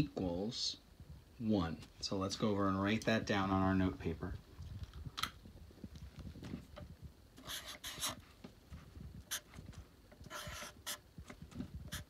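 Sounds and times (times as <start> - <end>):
marker scratching on paper: 7.4 - 8.2, 9.3 - 9.6, 10.3 - 11.0.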